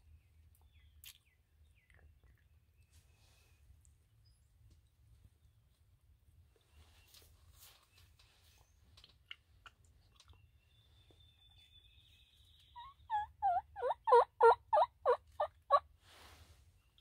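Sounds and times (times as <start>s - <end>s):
wild turkey yelping: 12.8s - 15.9s.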